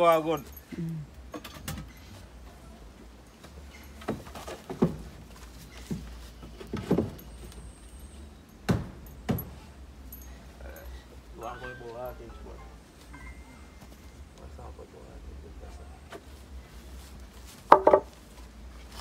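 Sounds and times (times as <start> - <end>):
wooden boards knocking: 17.7 - 18.1.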